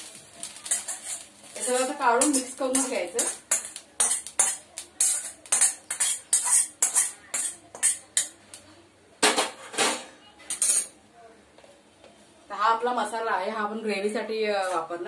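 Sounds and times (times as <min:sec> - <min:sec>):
metal spoon scraping iron pan: 0:00.6 - 0:08.4.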